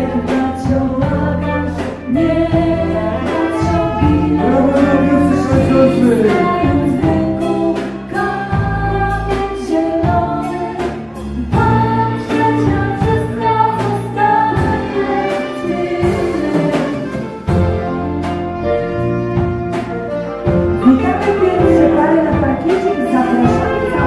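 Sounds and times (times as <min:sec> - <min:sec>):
woman singing: 0:00.0 - 0:17.2, 0:20.8 - 0:24.0
live dance band playing: 0:00.2 - 0:09.6, 0:11.6 - 0:24.0
drum beat: 0:03.4 - 0:07.6.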